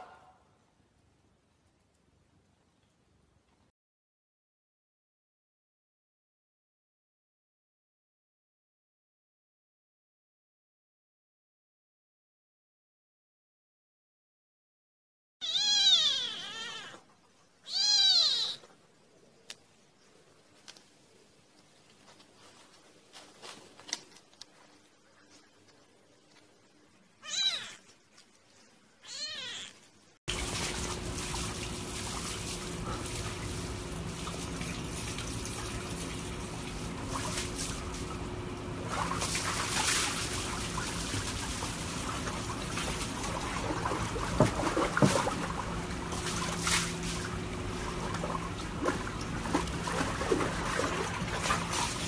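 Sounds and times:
kitten meowing: 0:15.4 - 0:17.0, 0:17.6 - 0:18.7, 0:27.2 - 0:27.9, 0:29.0 - 0:29.8
short splashes: 0:30.3 - 0:38.2, 0:38.8 - 0:52.0
water sloshing in plastic tub: 0:30.3 - 0:52.0.

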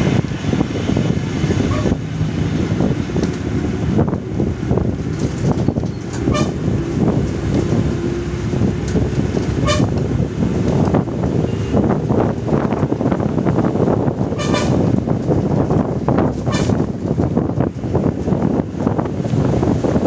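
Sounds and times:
bus engine running: 0:00.0 - 0:20.0
road noise: 0:00.0 - 0:20.0
horn toots: 0:01.5 - 0:02.0, 0:06.1 - 0:06.7, 0:09.6 - 0:10.0, 0:14.3 - 0:15.0, 0:16.4 - 0:16.9.

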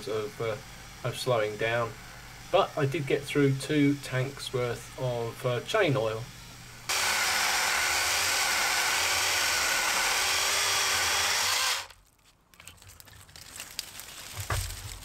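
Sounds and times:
mini chainsaw cutting wood: 0:06.9 - 0:12.0
twigs and brush crackling: 0:11.9 - 0:15.0.

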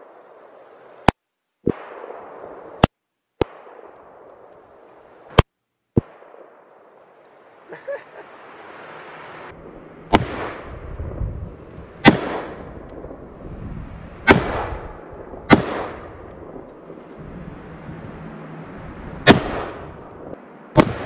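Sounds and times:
rifle shots with echo: 0:01.7 - 0:04.5, 0:06.0 - 0:06.9, 0:10.1 - 0:10.7, 0:12.0 - 0:13.1, 0:14.2 - 0:17.0, 0:19.2 - 0:21.0.

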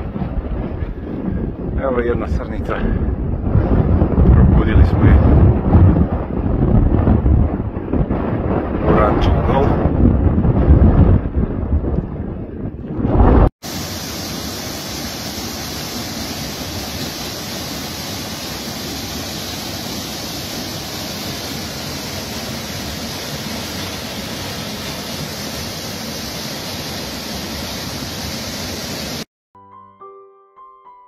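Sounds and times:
waterfall rushing: 0:13.6 - 0:29.3
soft piano music: 0:29.6 - 0:31.0.

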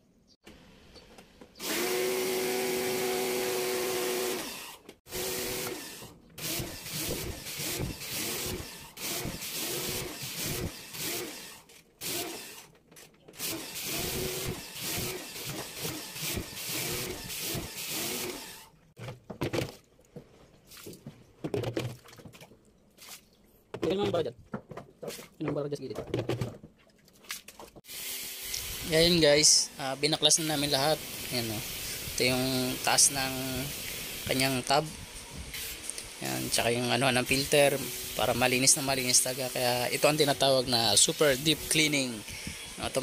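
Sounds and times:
electric drill motor whining: 0:01.6 - 0:12.7, 0:13.4 - 0:18.7, 0:27.9 - 0:36.7, 0:37.3 - 0:43.0.

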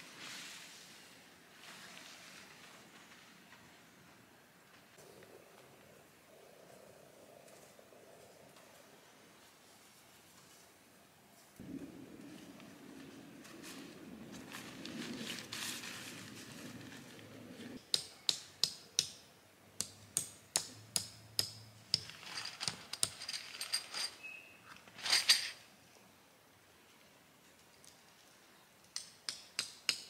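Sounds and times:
soft rustling: 0:00.0 - 0:05.4, 0:07.4 - 0:17.8.

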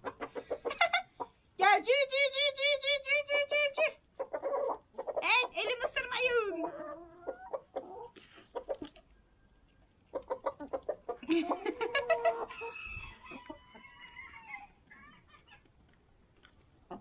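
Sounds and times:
hens clucking: 0:00.0 - 0:01.6, 0:03.3 - 0:17.0
hen long drawn-out call: 0:11.9 - 0:15.6.

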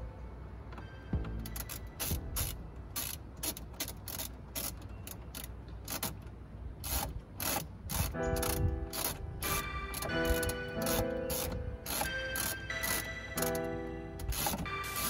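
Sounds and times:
sharp mechanical clicks: 0:01.4 - 0:13.6, 0:14.2 - 0:15.0
steady pitched tones: 0:08.2 - 0:15.0.

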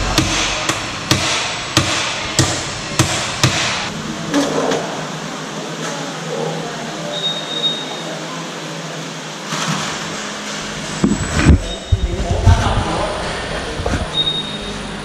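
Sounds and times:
hammer knocking on metal: 0:00.0 - 0:03.9.

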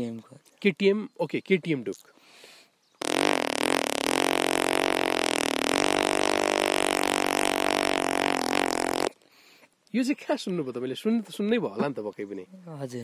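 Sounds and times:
person imitating motorcycle engine: 0:03.1 - 0:09.1.

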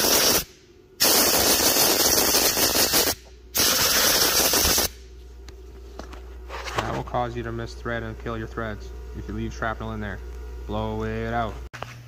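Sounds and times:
compressed air blasts: 0:00.0 - 0:05.1.

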